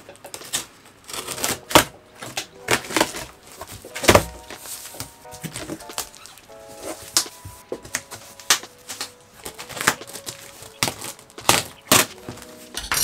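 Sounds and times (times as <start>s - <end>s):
plastic crinkling: 0.3s - 13.0s
cardboard and packaging knocks: 1.8s - 6.1s.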